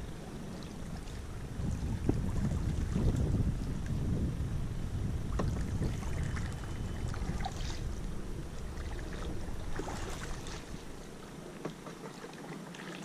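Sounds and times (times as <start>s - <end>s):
wind buffeting microphone: 0.0s - 11.5s
canoe paddle splashing in water: 5.3s - 13.0s.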